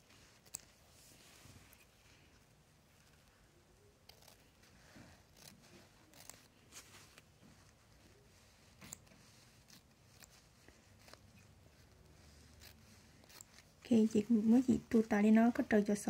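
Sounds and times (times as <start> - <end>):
small clicks and snips: 0.4 - 0.8, 4.0 - 4.5, 8.8 - 10.4, 12.5 - 13.7.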